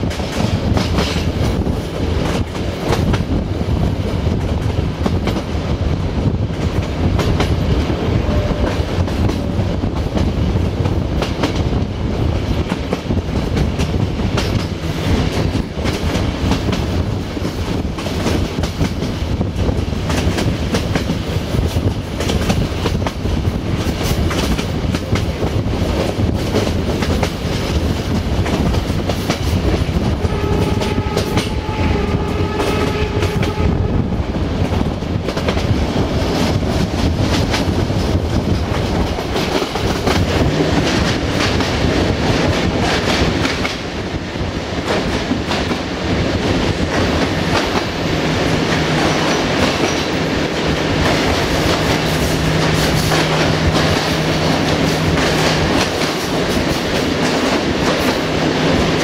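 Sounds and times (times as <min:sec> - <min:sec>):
train wheels clacking over joints: 0:00.0 - 0:03.4, 0:12.5 - 0:33.6, 0:44.8 - 0:59.0
train echoing in tunnel: 0:00.0 - 0:59.0
locomotive horn blasts: 0:08.2 - 0:08.8, 0:30.2 - 0:34.2.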